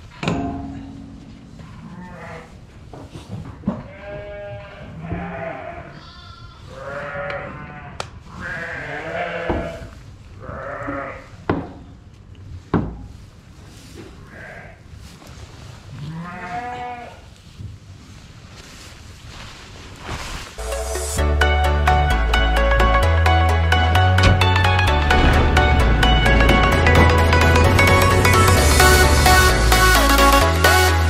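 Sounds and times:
sheep bleating: 0:03.9 - 0:11.3, 0:16.0 - 0:17.2
sharp knocks: 0:24.2 - 0:27.9.

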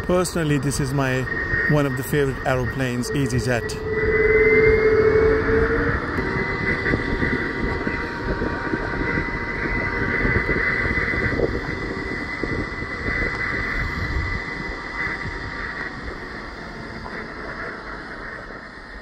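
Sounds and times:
jet engines whining: 0:00.0 - 0:19.0
low hum: 0:00.0 - 0:19.0.

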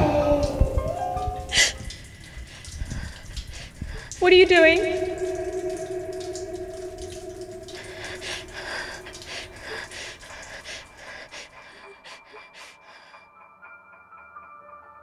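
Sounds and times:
short gasping breaths: 0:01.5 - 0:04.2, 0:07.6 - 0:13.2
low held tone: 0:04.5 - 0:10.4
rustling breathy noise: 0:05.2 - 0:13.3.

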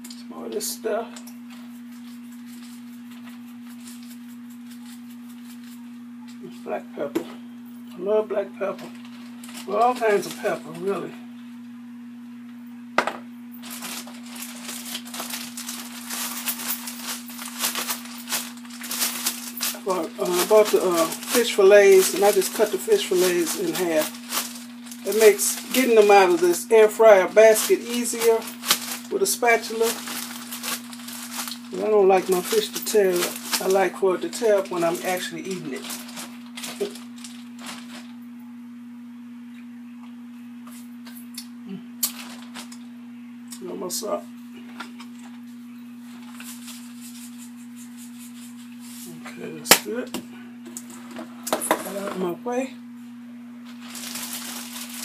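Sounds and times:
electrical hum: 0:00.0 - 0:55.0
plastic bag crinkling: 0:01.2 - 0:06.0, 0:08.6 - 0:11.0, 0:13.6 - 0:38.2, 0:42.0 - 0:42.9, 0:46.0 - 0:49.8, 0:53.6 - 0:55.0.

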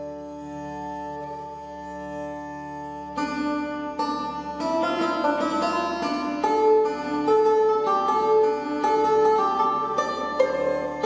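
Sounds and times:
plucked harpsichord-like melody: 0:03.2 - 0:11.0.

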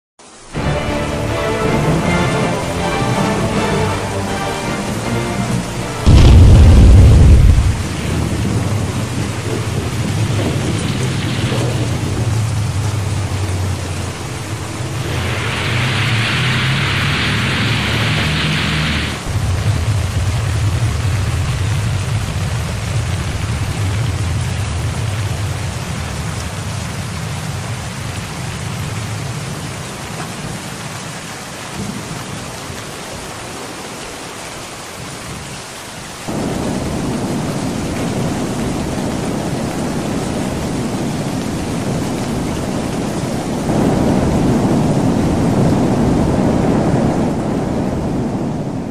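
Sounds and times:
surf breaking on rocks: 0:00.6 - 0:23.6
wind buffeting microphone: 0:06.0 - 0:18.6, 0:36.3 - 0:48.9.

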